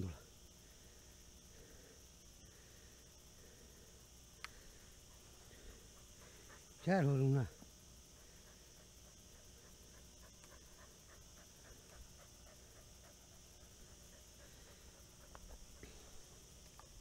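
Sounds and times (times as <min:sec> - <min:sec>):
steady high hiss: 0:00.0 - 0:17.0
dog panting: 0:05.0 - 0:07.2, 0:08.1 - 0:16.6.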